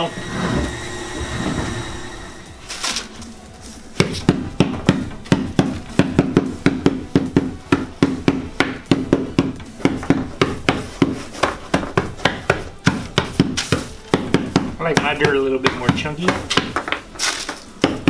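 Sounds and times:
mallet pounding cookies: 0:03.9 - 0:18.0.

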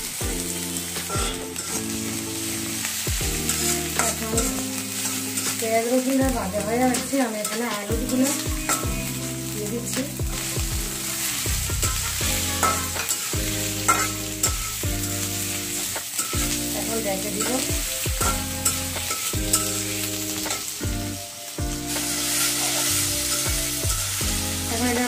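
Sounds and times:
potatoes sizzling in hot oil: 0:00.0 - 0:25.0
metal spatula scraping a pan: 0:01.0 - 0:02.6, 0:03.5 - 0:09.2, 0:12.0 - 0:15.5, 0:16.1 - 0:20.8, 0:21.9 - 0:23.8.

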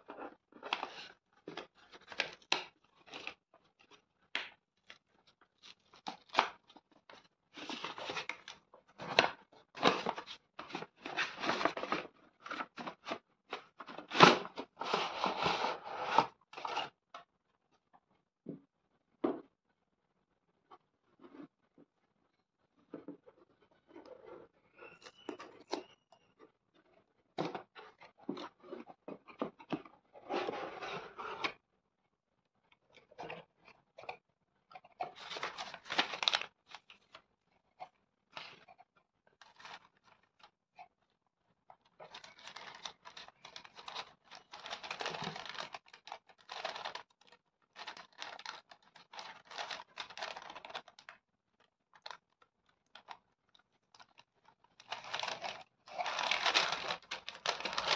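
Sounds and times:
tissue paper and bubble wrap rustling: 0:07.6 - 0:13.2, 0:35.2 - 0:37.1, 0:42.1 - 0:51.1, 0:53.9 - 0:57.9.

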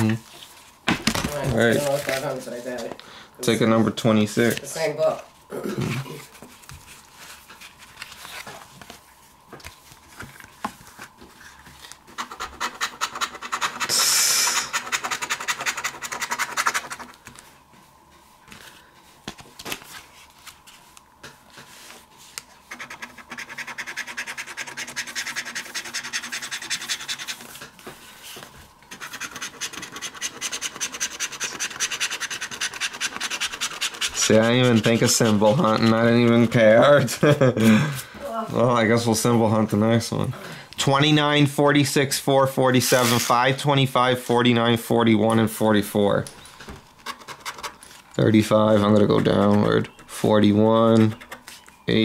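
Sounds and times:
lottery ticket being scratched: 0:12.1 - 0:17.2, 0:22.7 - 0:27.7, 0:28.9 - 0:36.6, 0:42.8 - 0:43.6.

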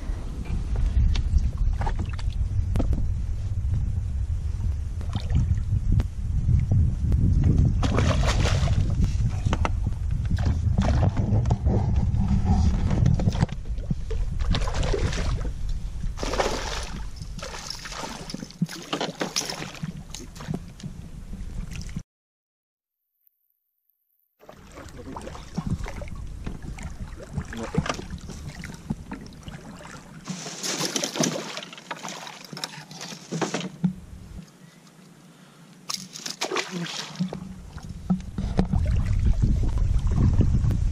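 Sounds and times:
low rumble: 0:00.0 - 0:17.8, 0:37.3 - 0:40.9
water sloshing around boat: 0:16.2 - 0:22.0, 0:24.4 - 0:34.0, 0:35.9 - 0:40.4.

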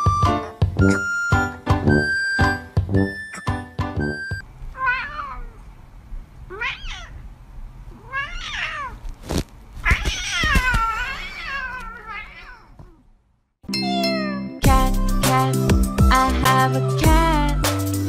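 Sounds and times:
cat meowing: 0:04.8 - 0:05.6, 0:06.5 - 0:07.2, 0:07.9 - 0:09.0, 0:09.8 - 0:13.0.

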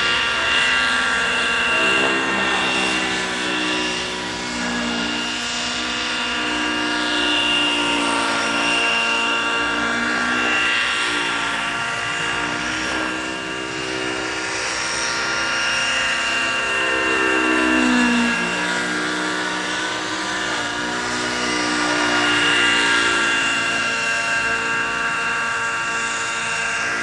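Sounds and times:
model helicopter engine and rotors: 0:00.0 - 0:27.0.

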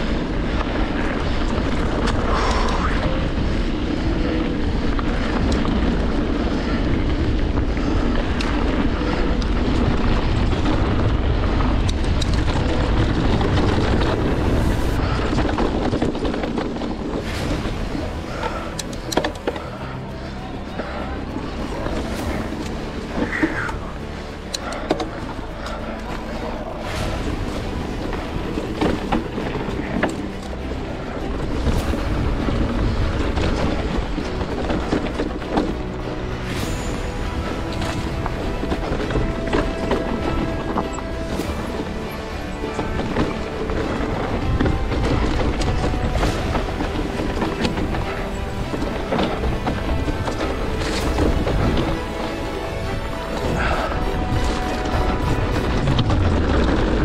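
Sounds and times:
wind on microphone: 0:00.0 - 0:19.2
bike clicks and rattles: 0:00.0 - 0:36.6
bike tyres rolling on dirt: 0:00.0 - 0:57.0
bike knocking and rattling: 0:03.4 - 0:21.1.

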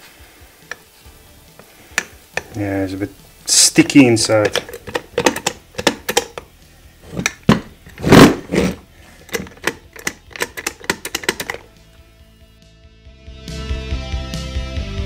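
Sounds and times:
metallic clicks and knocks: 0:04.4 - 0:06.5, 0:07.1 - 0:11.7
ratchet working: 0:04.4 - 0:06.5, 0:07.1 - 0:11.7
metal rattle: 0:07.1 - 0:11.7.

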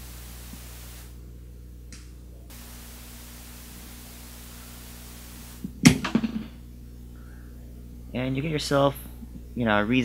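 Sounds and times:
background hiss: 0:00.0 - 0:10.0
electrical hum: 0:00.0 - 0:10.0.

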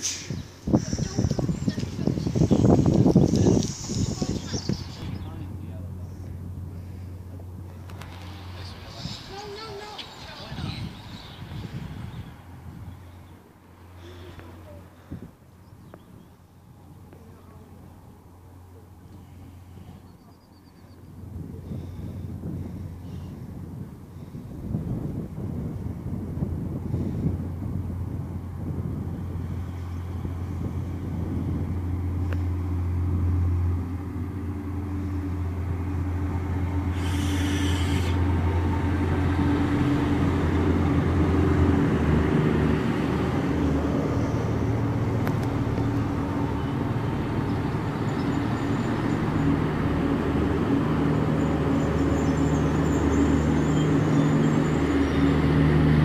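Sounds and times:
brief hiss: 0:00.0 - 0:00.6, 0:36.9 - 0:38.3
diesel train engines humming: 0:00.0 - 0:56.0.

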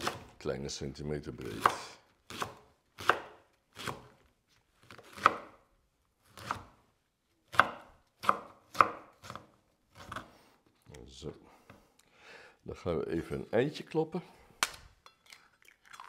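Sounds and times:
knife slicing leek: 0:01.5 - 0:04.2, 0:04.8 - 0:05.6, 0:06.3 - 0:06.8, 0:07.5 - 0:10.4.

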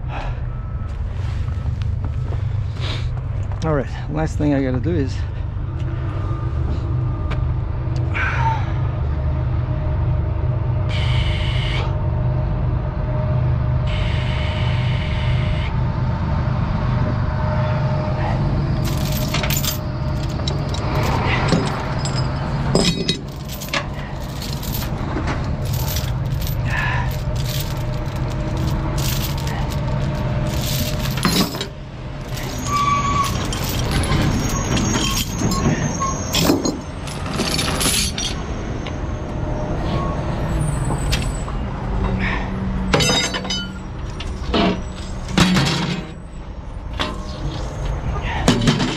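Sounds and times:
metallic clinks and clanks: 0:18.8 - 0:38.5, 0:42.9 - 0:48.9.

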